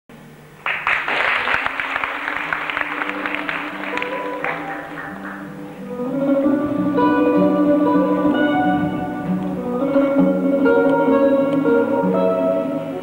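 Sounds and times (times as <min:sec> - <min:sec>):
audience applauding: 0:00.6 - 0:05.8
small band playing: 0:01.4 - 0:13.0.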